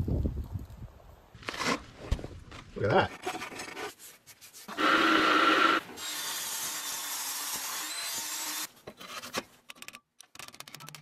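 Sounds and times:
saw cutting through metal: 0:04.7 - 0:08.7.

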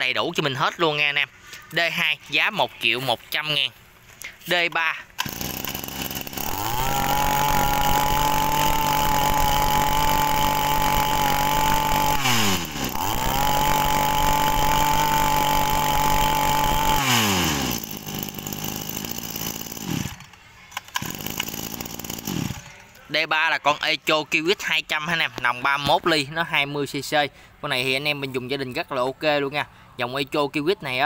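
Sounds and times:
brush-cutter engine revving: 0:04.2 - 0:23.0.

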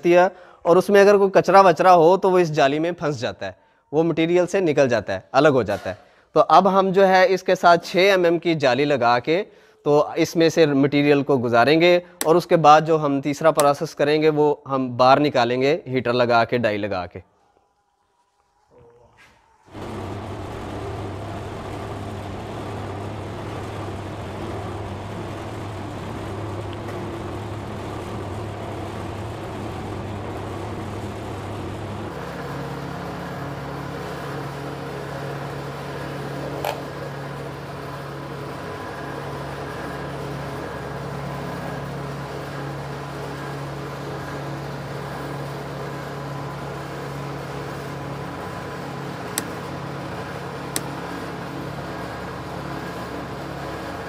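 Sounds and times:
soap extruder motor humming: 0:17.5 - 0:54.0
sharp click: 0:50.7 - 0:50.9.

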